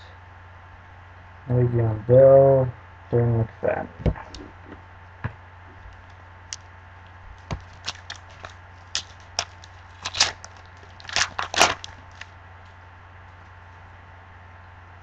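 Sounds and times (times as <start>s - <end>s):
foil wrapper crinkling and tearing: 7.4s - 12.3s.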